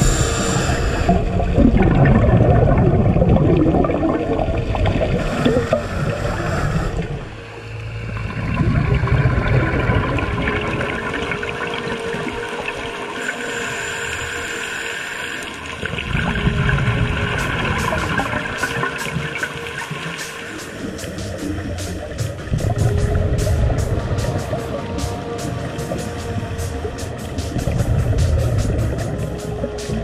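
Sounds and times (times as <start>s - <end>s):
regulator hissing: 0.0s - 1.3s
faint steady hum: 0.0s - 21.3s
underwater bubbles gurgling: 0.0s - 30.0s.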